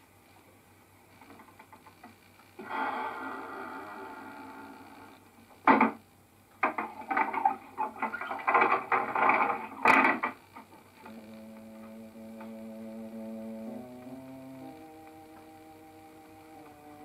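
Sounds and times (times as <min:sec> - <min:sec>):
clattering rattling knocks and thuds: 0:06.6 - 0:10.4
low held music chord: 0:11.1 - 0:17.0.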